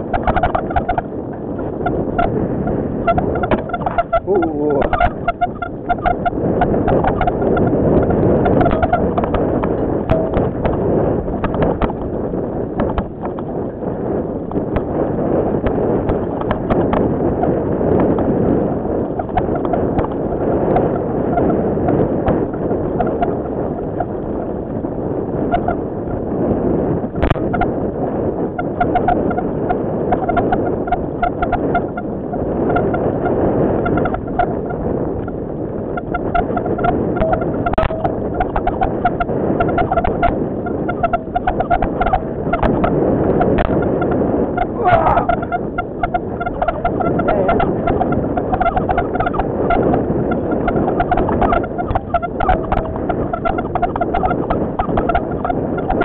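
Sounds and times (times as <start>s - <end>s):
short squeaks: 0.0s - 2.4s, 3.0s - 12.2s, 19.0s - 24.6s, 25.5s - 26.2s, 28.6s - 56.0s
bike tyres rumbling on dirt: 0.0s - 56.0s
wind rushing over microphone: 0.0s - 56.0s
rapid rattling clicks: 0.1s - 2.4s, 3.1s - 12.2s, 12.8s - 13.7s, 19.0s - 21.6s, 36.0s - 56.0s.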